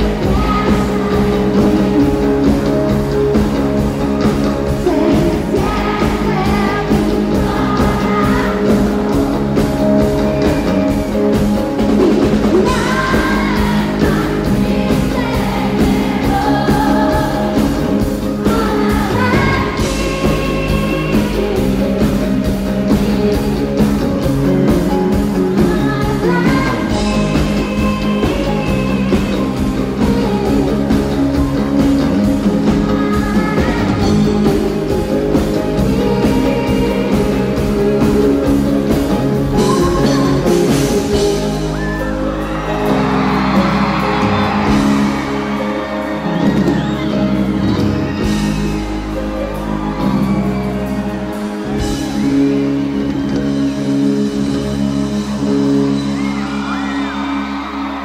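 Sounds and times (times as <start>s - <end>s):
woman singing: 0.0s - 2.9s, 4.7s - 9.0s, 12.5s - 23.8s, 25.5s - 31.3s, 32.6s - 38.4s, 39.5s - 41.8s
crowd whooping and shouting: 0.0s - 58.0s
live electropop band: 0.0s - 58.0s.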